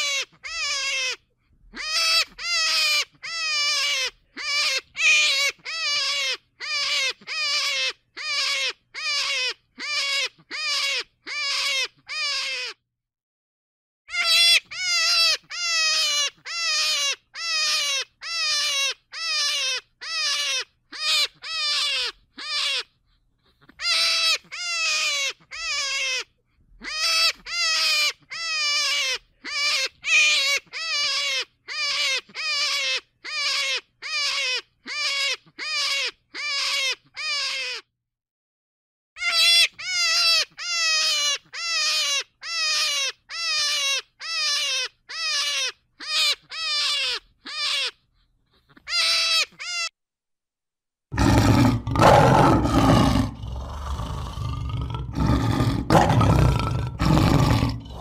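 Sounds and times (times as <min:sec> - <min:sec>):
animal calls falling in pitch: 0:51.2 - 0:58.0.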